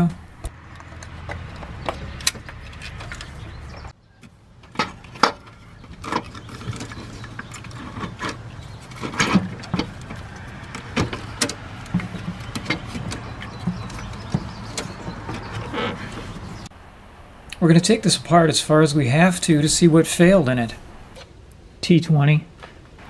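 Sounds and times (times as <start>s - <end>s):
clicks and knocks of car parts: 0.4s - 16.5s.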